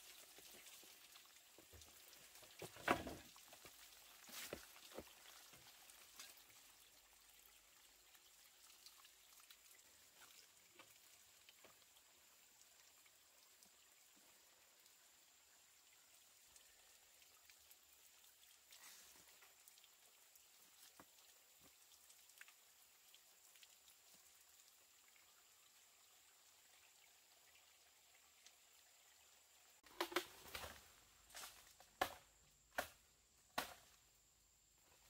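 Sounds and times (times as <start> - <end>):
light hiss: 7.4 - 25.8
sharp knocks and cracks: 29.8 - 30.8, 31.8 - 34.0.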